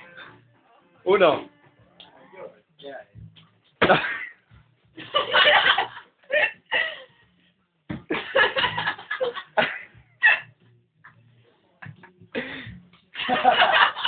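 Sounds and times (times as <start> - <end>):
people laughing: 3.8 - 4.4, 5.0 - 7.1, 8.1 - 10.5, 11.8 - 14.0.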